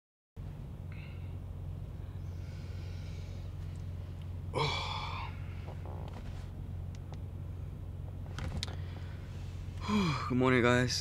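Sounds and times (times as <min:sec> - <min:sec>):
low hum: 0:00.4 - 0:11.0
faint breath: 0:00.9 - 0:01.4, 0:02.0 - 0:04.0, 0:08.7 - 0:10.2
man groaning: 0:04.5 - 0:05.6, 0:09.8 - 0:10.4.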